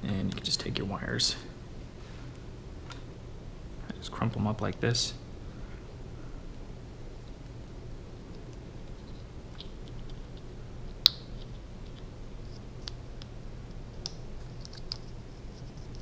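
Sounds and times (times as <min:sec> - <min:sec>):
wires clicking against plastic: 0:07.2 - 0:16.0.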